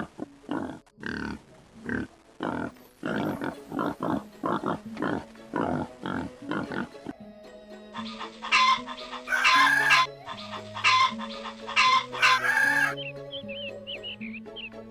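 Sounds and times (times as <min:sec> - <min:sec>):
background music with bass line: 0:00.0 - 0:14.9
hens clucking: 0:07.9 - 0:14.7
rooster crowing: 0:08.1 - 0:13.0.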